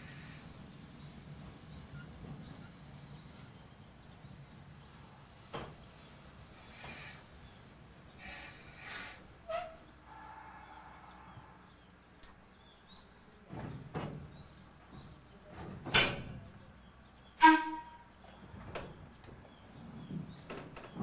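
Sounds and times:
air releases: 6.6 - 7.3, 8.2 - 9.8
train door clanks: 13.3 - 16.6.

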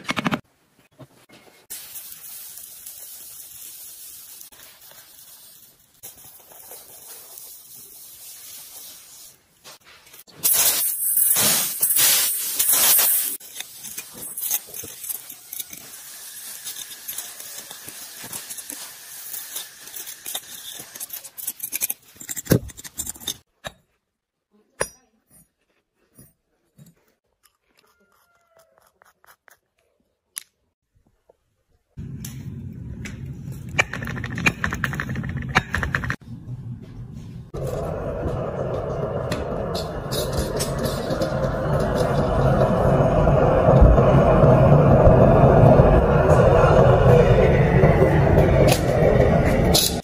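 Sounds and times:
molten metal hissing and crackling: 1.7 - 9.5, 10.4 - 20.8.

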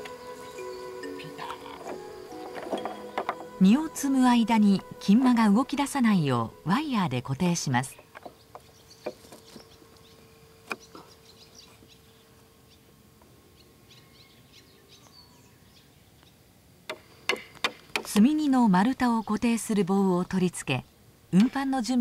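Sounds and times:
birds chirping: 0.0 - 22.0
wire rope knocking against logs: 1.8 - 3.5, 8.0 - 9.6
hatchet striking wooden pole: 16.9 - 18.1.

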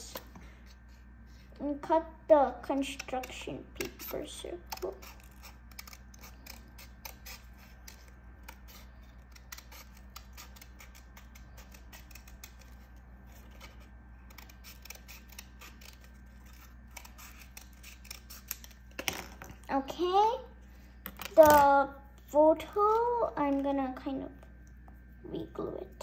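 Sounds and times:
scissors snipping paper: 2.7 - 18.8.

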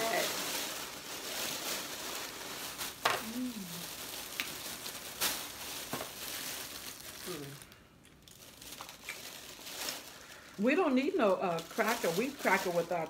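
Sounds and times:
plastic bags crinkling: 0.0 - 13.0
person saying mm: 3.1 - 3.8, 7.2 - 7.7
crab shells cracking: 4.3 - 4.6, 8.0 - 9.4.

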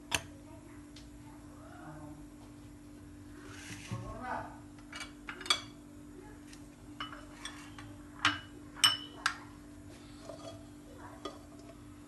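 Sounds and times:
kitchenware clinking: 4.9 - 5.8, 7.0 - 9.4, 10.2 - 11.7.

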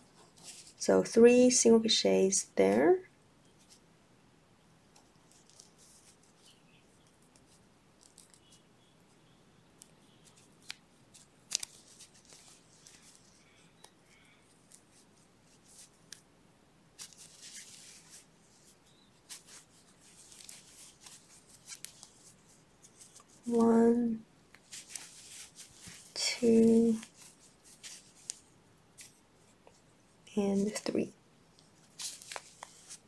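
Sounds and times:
yarn rustling: 0.0 - 0.9, 5.2 - 8.6, 9.8 - 16.2, 17.0 - 31.0, 31.6 - 33.0.

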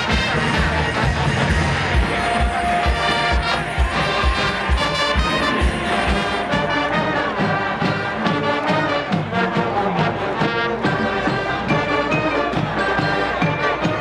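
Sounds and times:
drum beat: 0.0 - 9.8
brass band playing: 0.0 - 14.0.

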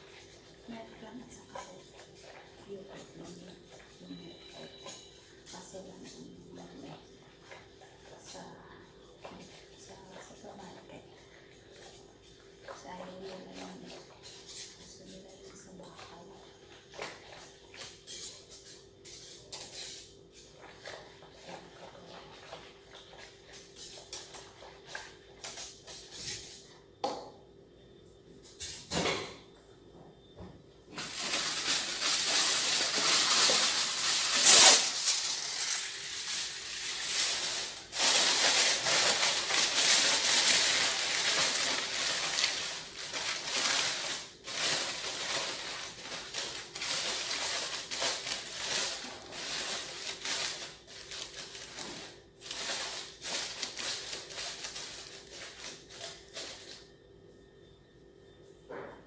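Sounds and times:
aluminium foil crinkling: 11.7 - 26.6, 30.9 - 56.9.

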